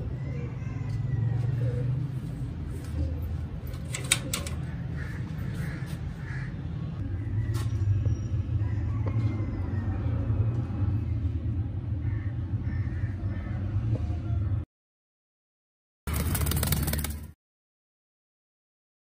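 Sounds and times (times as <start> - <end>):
metal latch clicks: 3.7 - 4.6
steady low rumble: 4.6 - 14.6.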